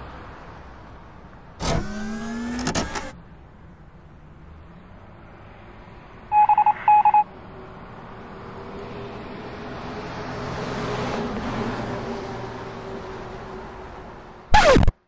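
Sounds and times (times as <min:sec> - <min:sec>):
short electronic beeps: 0:06.3 - 0:07.3.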